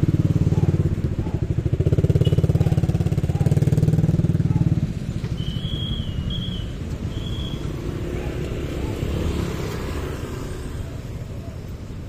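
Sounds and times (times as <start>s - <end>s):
motorcycle engine throbbing: 0.0s - 8.1s.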